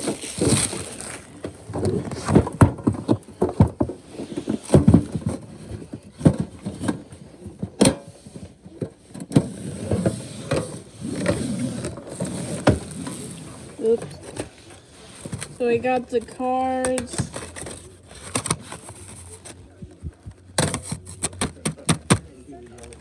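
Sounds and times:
plastic wrap crinkling: 0:00.0 - 0:01.4.

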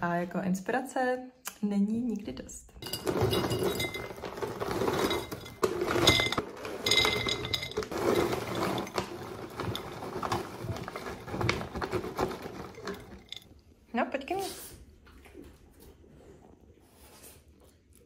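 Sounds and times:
dog treats rustling and clinking: 0:02.8 - 0:13.6.

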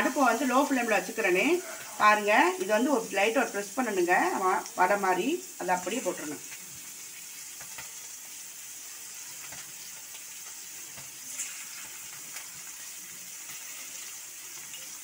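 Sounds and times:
patties sizzling in hot oil: 0:00.0 - 0:15.0
patty slid into oil sizzling: 0:06.4 - 0:14.9.

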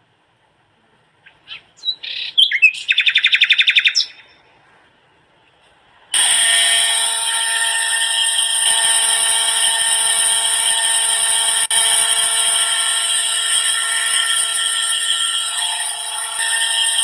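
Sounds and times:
birds chirping: 0:01.2 - 0:04.4
fast bird trill: 0:01.5 - 0:04.3
small motor whining: 0:06.2 - 0:17.0.

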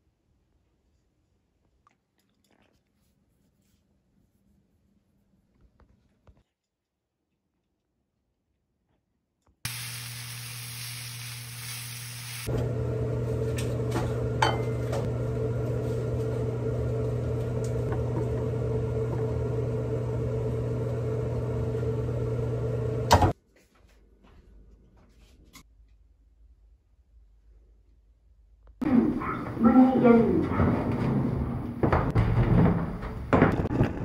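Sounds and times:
kitchen appliance electric hum: 0:09.7 - 0:23.4.

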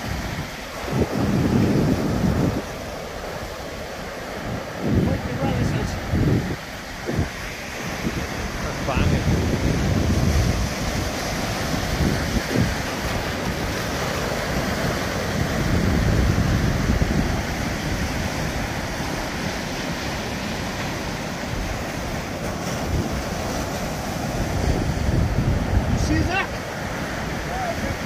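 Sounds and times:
surf breaking on a beach: 0:00.0 - 0:28.0
wind buffeting microphone: 0:00.0 - 0:28.0.

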